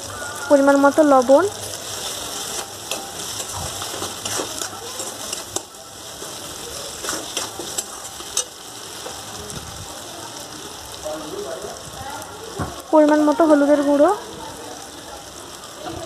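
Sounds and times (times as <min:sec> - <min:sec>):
masala sizzling in oil: 0:00.0 - 0:16.0
metal spatula scraping pan: 0:01.8 - 0:08.6.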